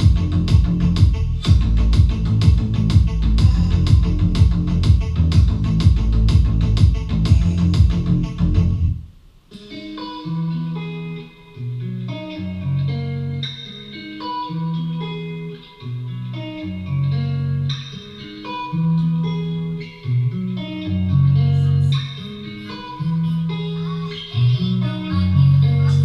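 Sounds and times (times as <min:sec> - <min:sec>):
bass line: 0:00.0 - 0:09.2, 0:18.8 - 0:22.1, 0:22.9 - 0:26.0
guitar melody: 0:00.0 - 0:26.0.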